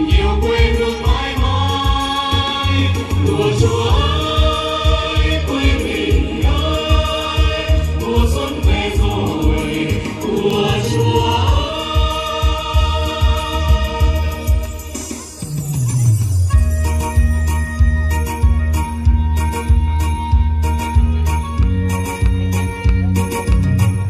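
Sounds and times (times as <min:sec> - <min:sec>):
upbeat song with heavy beat: 0:00.0 - 0:24.0.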